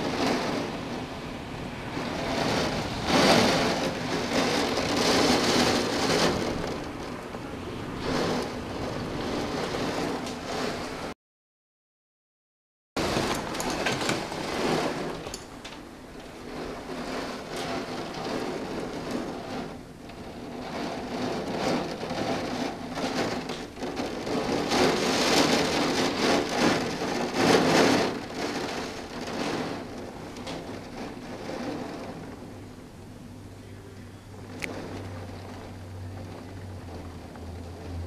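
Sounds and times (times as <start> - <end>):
heavy rain beating on window: 0.0 - 11.2, 13.0 - 38.0.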